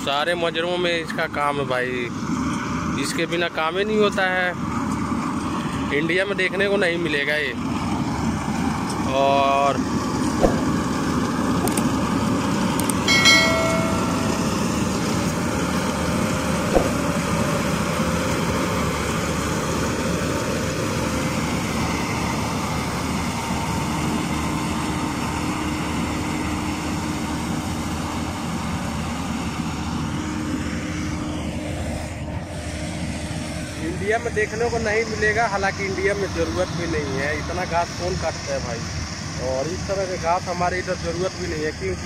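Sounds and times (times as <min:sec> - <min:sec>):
windrower engine and mowing header: 0:03.9 - 0:37.9
short high chirp: 0:13.1 - 0:14.8.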